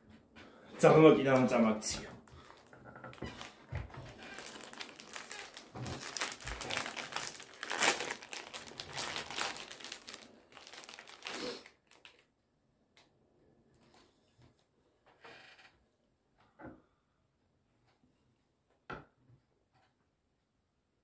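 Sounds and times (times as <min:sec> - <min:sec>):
wrapper crinkling: 0:02.3 - 0:12.3.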